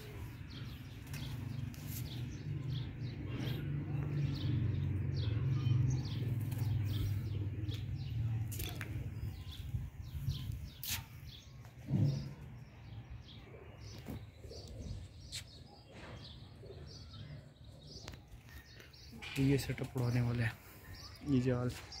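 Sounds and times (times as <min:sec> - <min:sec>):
pigeons cooing: 0:00.0 - 0:09.6, 0:11.8 - 0:19.6.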